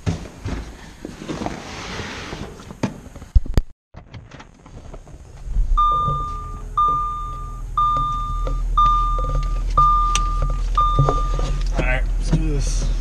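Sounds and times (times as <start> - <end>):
car engine humming: 4.9 - 13.0
dashboard warning chime: 5.8 - 11.6.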